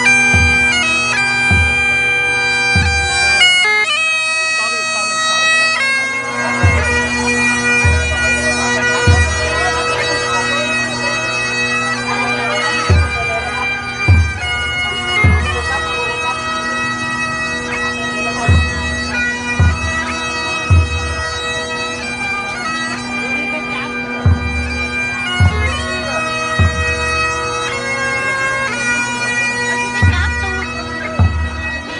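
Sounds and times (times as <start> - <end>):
shrill reed pipe melody: 0.0 - 31.9
drum strokes: 1.5 - 2.0, 14.0 - 15.8, 20.6 - 21.4, 25.4 - 27.4.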